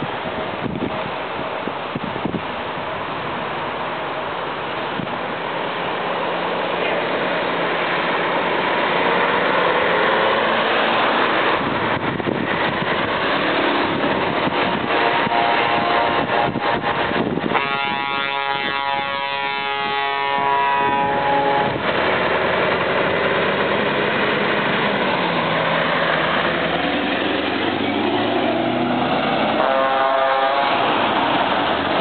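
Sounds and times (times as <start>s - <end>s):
diesel truck engine: 0.0s - 32.0s
truck multi-tone horn: 14.8s - 21.9s, 29.5s - 31.0s.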